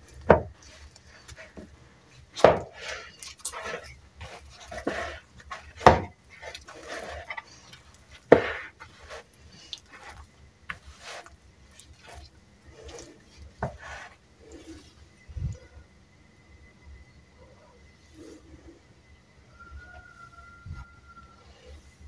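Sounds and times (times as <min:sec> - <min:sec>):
dough thumps: 0:00.0 - 0:00.9, 0:02.4 - 0:03.0, 0:03.7 - 0:07.4, 0:08.1 - 0:09.3
hands kneading dough: 0:00.0 - 0:15.7.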